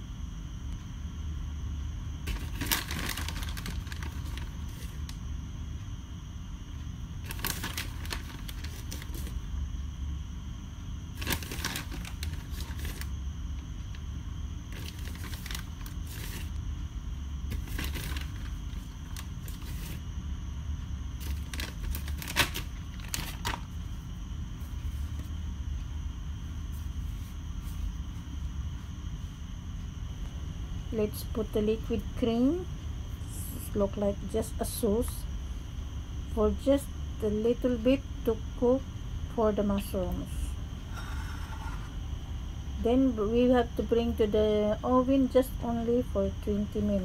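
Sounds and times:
steady low hum: 0.0 - 47.0
plastic bag crinkling: 2.2 - 5.1, 7.2 - 9.4, 11.1 - 13.1, 14.7 - 16.6, 17.5 - 20.0, 21.2 - 23.8.

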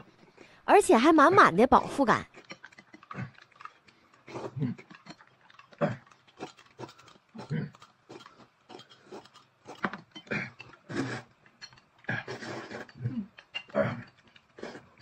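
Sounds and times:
wet slurping: 1.8 - 9.9, 10.6 - 11.4, 12.0 - 15.0.

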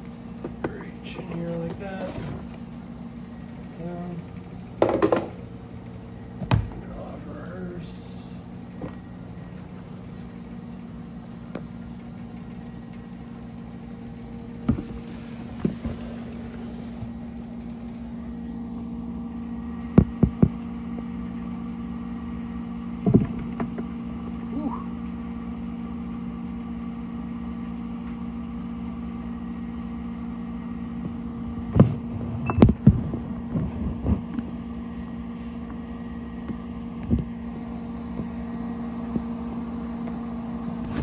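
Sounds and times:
machine hum: 0.0 - 41.0
plastic tubs and lids clattering: 4.8 - 5.4.

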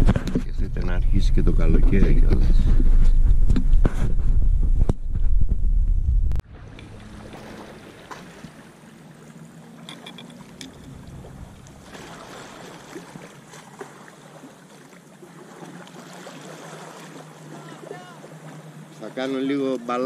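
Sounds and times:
wind: 0.0 - 20.0
small waves lapping on pebbles: 6.6 - 19.2.

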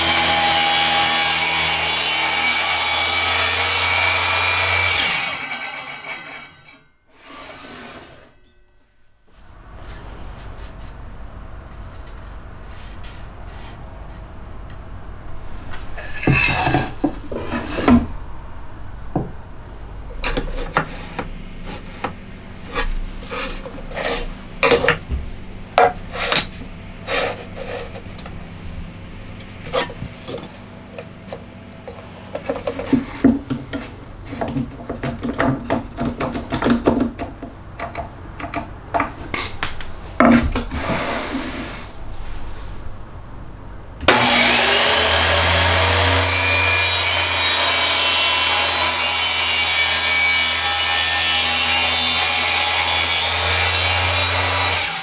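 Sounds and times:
wood scraping on wood: 7.2 - 8.4, 15.7 - 18.1, 20.2 - 28.4, 31.2 - 35.1, 39.2 - 42.8.

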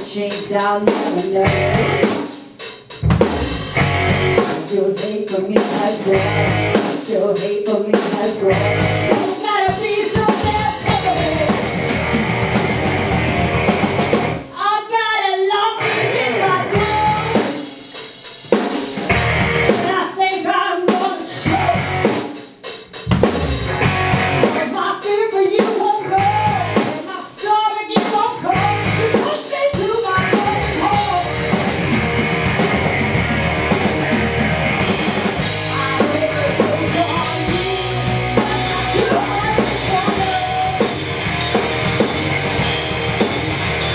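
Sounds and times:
rock band playing live: 0.0 - 43.9
electric guitar lead with bending notes: 1.4 - 2.2, 3.0 - 4.5, 6.1 - 6.8, 8.4 - 9.3, 10.2 - 14.5, 15.7 - 17.5, 19.0 - 19.9, 21.4 - 22.1, 23.1 - 24.6, 30.1 - 43.9.

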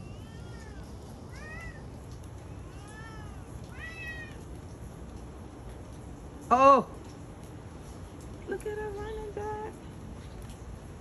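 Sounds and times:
cat meowing: 0.0 - 4.5.

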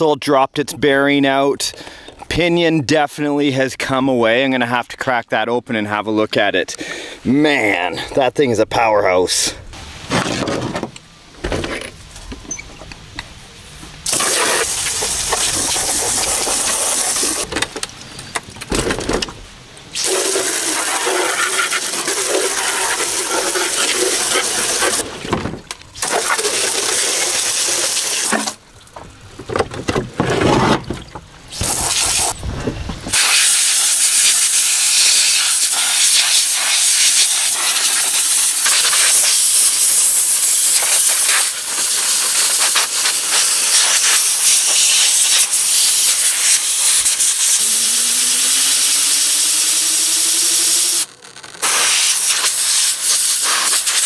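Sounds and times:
hose spray hissing: 14.0 - 17.5, 19.9 - 25.0, 26.0 - 28.6, 31.5 - 32.4, 33.1 - 54.0.

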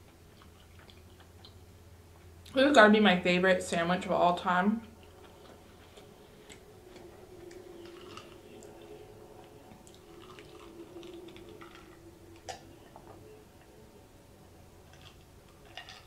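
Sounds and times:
person chewing: 0.0 - 1.7, 4.8 - 13.8, 14.8 - 16.0
faint steady hum: 0.0 - 16.0.

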